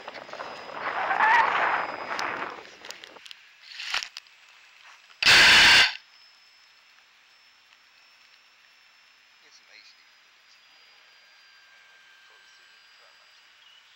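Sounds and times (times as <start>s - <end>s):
model plane motor noise: 0.0s - 13.9s
thin steady high whine: 0.0s - 13.9s
loud rush of noise: 5.2s - 6.0s
rushing air: 5.2s - 6.0s.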